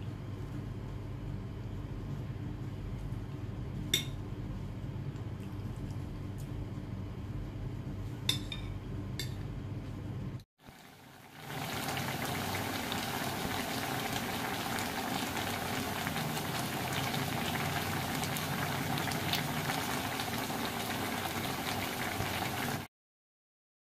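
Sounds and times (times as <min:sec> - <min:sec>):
stew bubbling and sizzling: 0:10.6 - 0:22.9.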